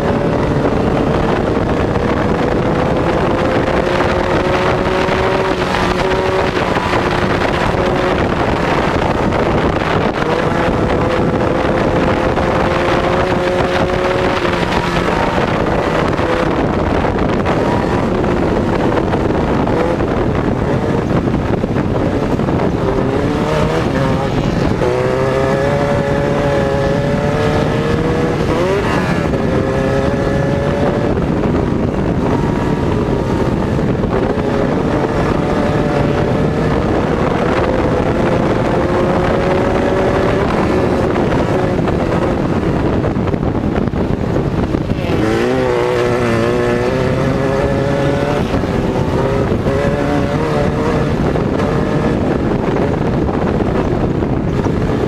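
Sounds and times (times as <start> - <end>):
wind buffeting microphone: 0.0 - 55.0
engine revving hard: 21.8 - 43.0, 44.2 - 53.4.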